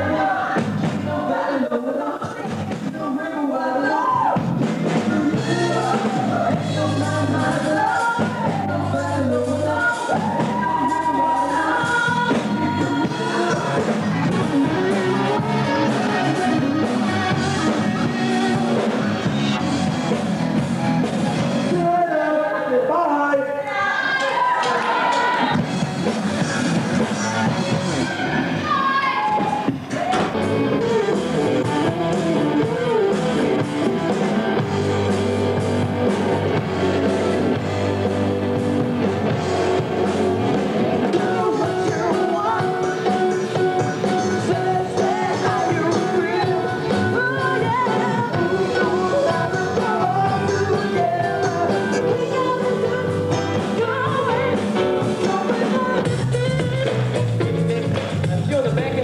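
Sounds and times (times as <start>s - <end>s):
drum kit beat: 0.0s - 1.3s, 2.2s - 3.2s, 4.0s - 22.1s, 24.2s - 59.0s
live rock band playing: 0.0s - 1.3s, 2.4s - 3.2s, 4.0s - 22.1s, 24.1s - 59.0s
person singing into microphone: 0.0s - 19.6s, 38.5s - 57.0s
electric guitars: 4.0s - 21.9s, 24.0s - 59.0s
heavy bass line: 4.1s - 22.1s, 25.5s - 59.0s.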